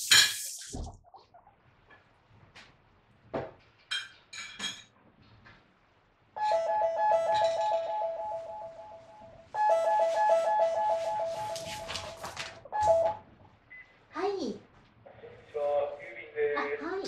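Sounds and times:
electronic intercom chime: 6.4s - 13.2s.

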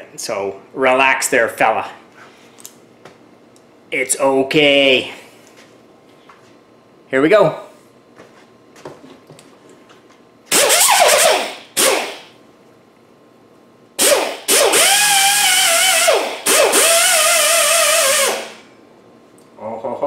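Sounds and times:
air die grinder whining: 14.0s - 18.6s.

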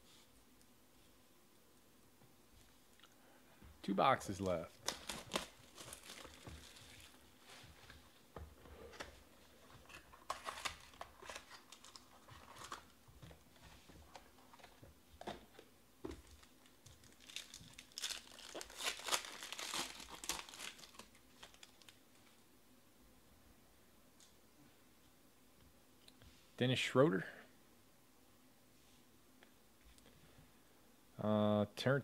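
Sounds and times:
plastic wrap crinkling: 4.4s - 8.2s, 8.8s - 22.2s
foil card pack tearing: 4.8s - 7.2s, 9.8s - 12.9s, 16.3s - 21.9s.

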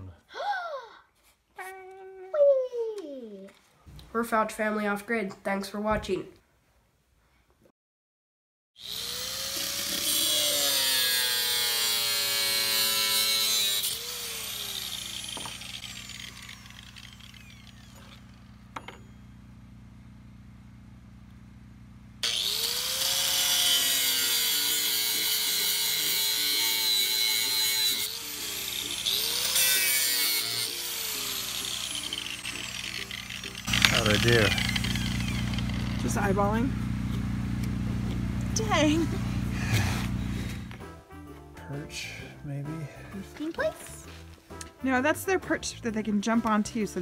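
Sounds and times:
power tool cutting: 8.8s - 19.2s, 22.2s - 40.8s
angle grinder cutting metal: 8.8s - 19.3s, 22.2s - 40.8s.

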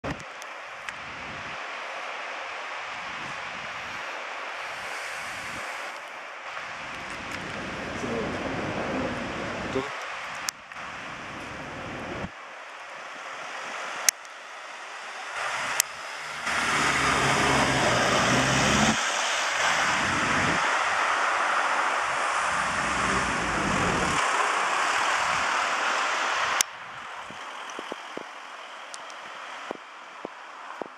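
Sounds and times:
car engine and tyres: 13.2s - 30.9s
street traffic: 13.8s - 30.9s.

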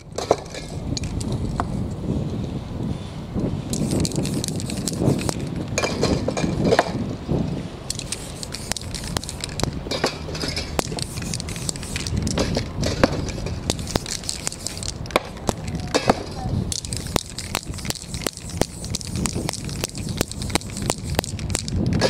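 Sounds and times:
spray paint cans hissing: 0.0s - 2.3s, 3.5s - 7.0s, 7.6s - 22.0s
cans clicking and knocking: 7.9s - 22.0s.

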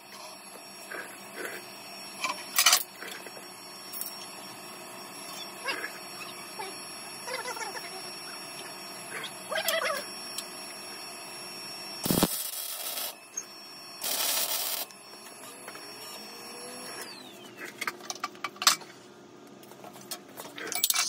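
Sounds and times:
electric welding crackle: 12.0s - 13.3s, 14.0s - 17.0s.

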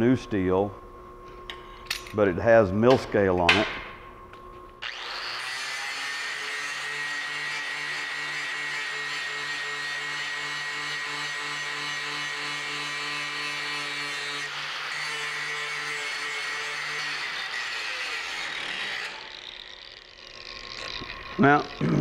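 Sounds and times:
angle grinder grinding steel: 4.8s - 22.0s.

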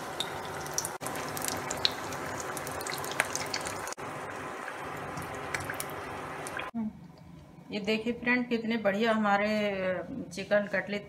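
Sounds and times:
oil sizzling with pops: 0.0s - 6.8s.

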